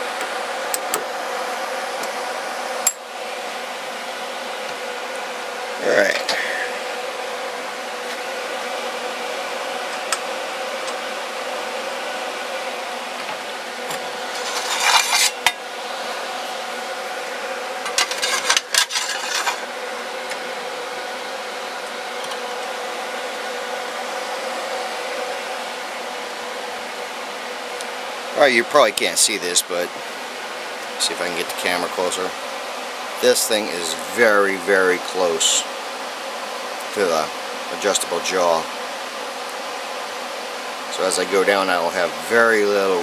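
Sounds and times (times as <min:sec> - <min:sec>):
motor hum: 0:00.0 - 0:43.0
metal plate scraping against vise: 0:14.3 - 0:15.4, 0:17.9 - 0:19.6.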